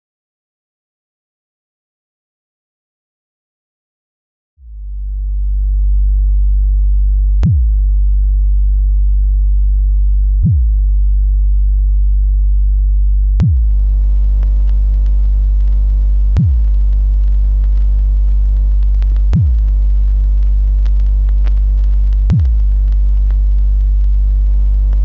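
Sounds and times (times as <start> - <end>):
deep low drone: 4.6 - 25.0
hiss and buzzing hum: 13.4 - 25.0.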